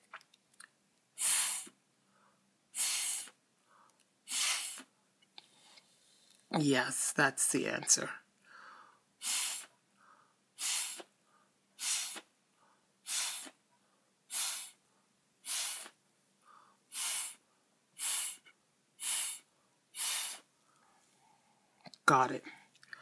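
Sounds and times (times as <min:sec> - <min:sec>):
hissing puffs through a straw: 0:01.2 - 0:01.8, 0:02.7 - 0:03.4, 0:04.2 - 0:04.9, 0:09.2 - 0:09.8, 0:10.6 - 0:11.2, 0:11.8 - 0:12.3, 0:13.0 - 0:13.6, 0:14.3 - 0:14.8, 0:15.4 - 0:16.0, 0:16.9 - 0:17.4, 0:18.0 - 0:20.5.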